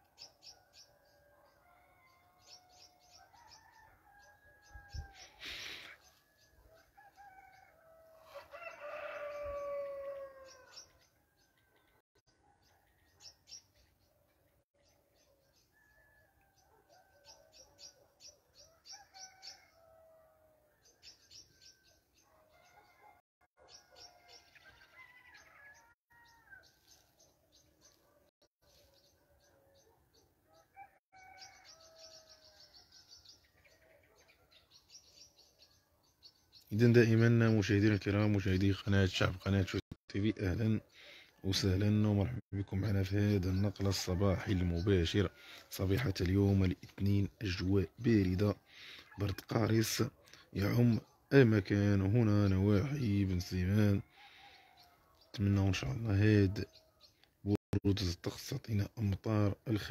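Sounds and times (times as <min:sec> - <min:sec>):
small birds chirping: 0:00.0 - 0:08.0, 0:08.7 - 0:39.8, 0:40.7 - 0:59.0
rooster crowing: 0:00.6 - 0:05.5, 0:06.4 - 0:10.9, 0:15.7 - 0:17.6, 0:18.6 - 0:20.9, 0:22.2 - 0:26.8, 0:30.4 - 0:33.0.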